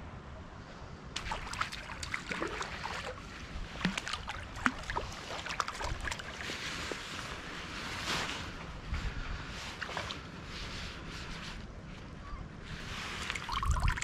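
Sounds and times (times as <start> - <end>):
river water splashing and gurgling: 1.2 - 8.0, 13.0 - 14.0.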